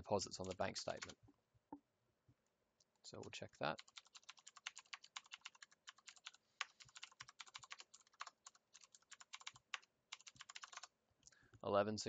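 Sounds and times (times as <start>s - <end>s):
faint computer keyboard typing: 0.3s - 1.2s, 3.1s - 10.9s.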